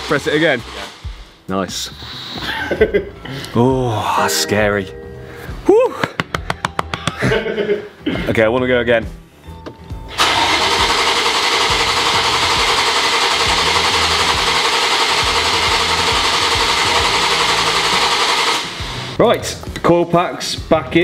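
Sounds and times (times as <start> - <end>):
starter motor cranking engine: 10.1 - 19.2.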